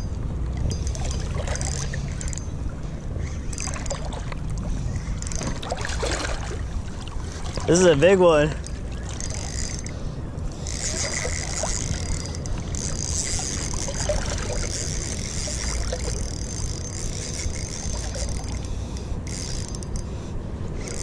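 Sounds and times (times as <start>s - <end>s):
river water: 0.0s - 21.0s.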